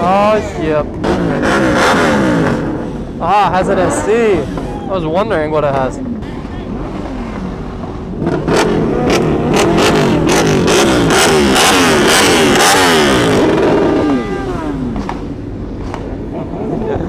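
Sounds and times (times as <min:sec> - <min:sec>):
exhaust pops and crackles: 0:14.9 - 0:16.3.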